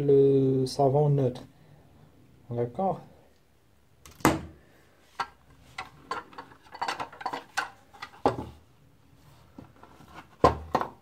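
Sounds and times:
plastic parts clicking and knocking: 5.2s - 8.6s, 9.6s - 11.0s.

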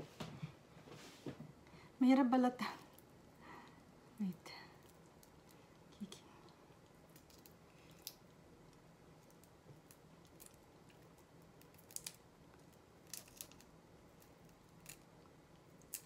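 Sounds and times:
shrimp shell clicks and cracks: 7.1s - 15.1s, 15.8s - 16.0s.

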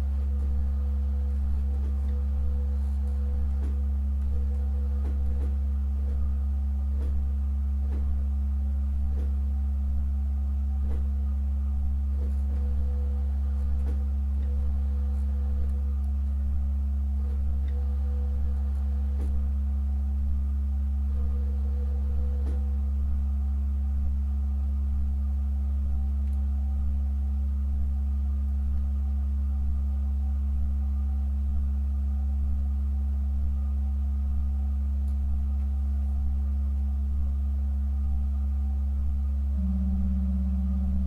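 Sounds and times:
pipe organ chord: 39.6s - 41.0s.

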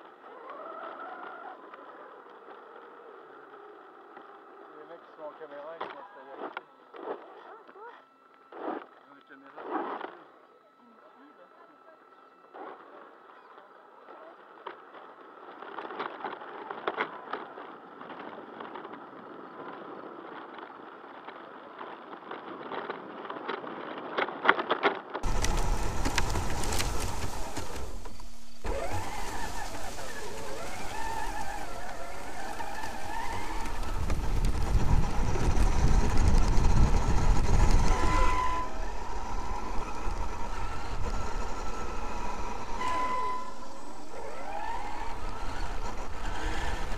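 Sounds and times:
electric motor whining: 0.0s - 20.7s, 25.2s - 46.9s
faint noisy haze: 25.2s - 46.9s
heavy low rumble: 25.2s - 46.9s.

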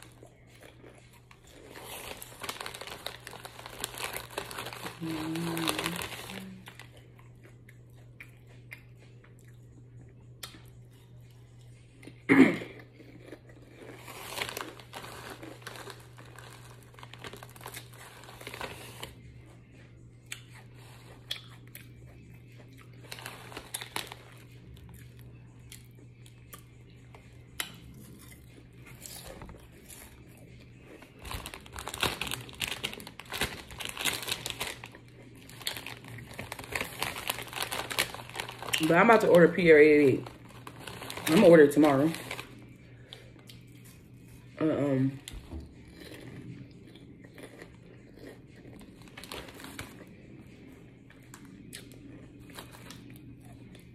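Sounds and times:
plastic snack bag crinkling: 0.0s - 7.1s, 13.0s - 19.3s, 22.9s - 25.2s, 28.9s - 44.0s, 45.0s - 53.8s
chewing and crunching: 0.0s - 53.9s.

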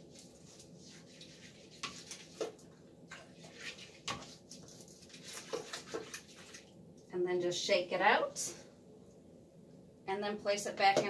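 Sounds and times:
toilet brush scrubbing bowl: 0.0s - 6.7s.

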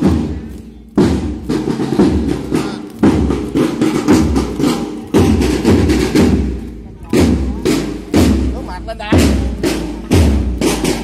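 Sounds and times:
marching drum beating: 0.0s - 11.0s.

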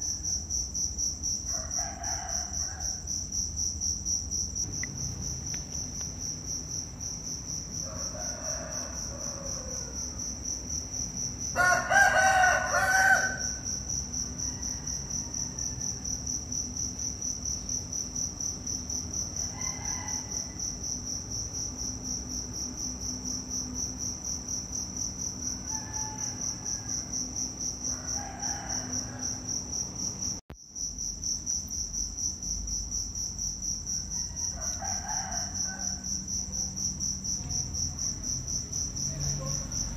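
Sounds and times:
insect chorus shrilling in pulses: 1.4s - 30.4s.

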